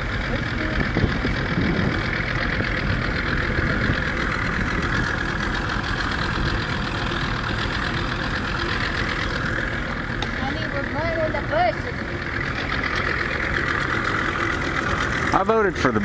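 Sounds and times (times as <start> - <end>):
rushing air and water: 0.0 - 10.5
boat motor running: 0.0 - 16.0.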